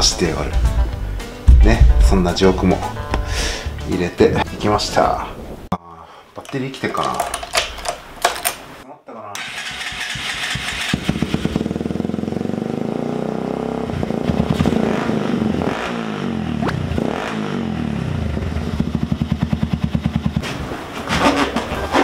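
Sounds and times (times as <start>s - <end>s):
motorcycle engine revving: 9.4s - 22.0s.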